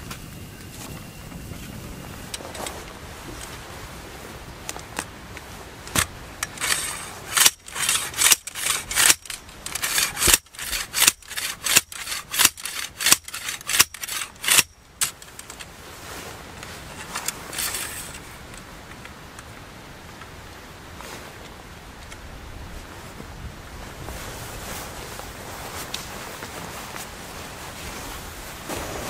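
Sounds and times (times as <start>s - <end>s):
metal pole striking dry turf: 5.9s - 15.2s.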